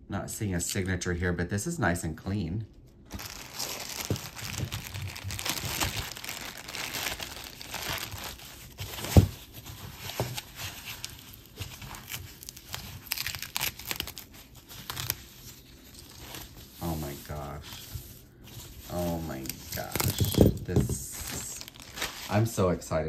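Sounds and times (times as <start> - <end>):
packaging crinkling and rustling: 2.9 - 22.6.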